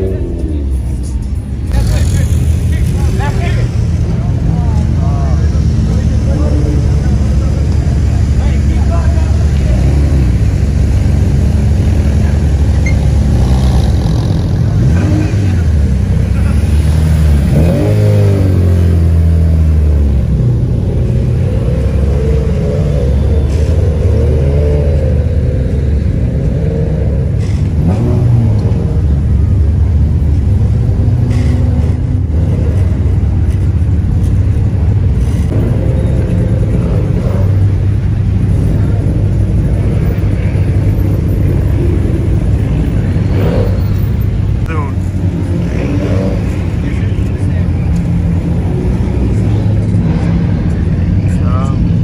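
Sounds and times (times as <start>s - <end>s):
car engines revving past: 0.0s - 52.0s.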